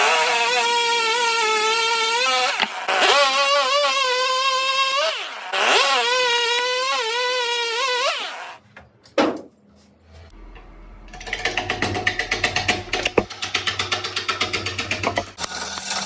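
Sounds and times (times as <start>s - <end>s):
chainsaw revving and cutting wood: 0.0s - 8.6s.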